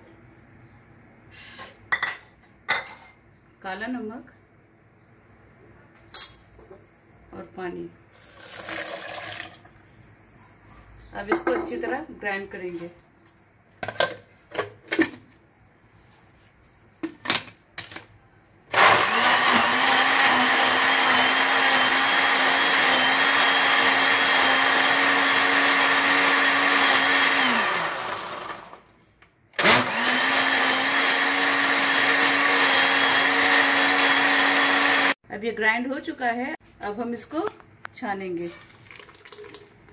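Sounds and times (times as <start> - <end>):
blender motor grinding: 18.7 - 28.8, 29.6 - 35.2.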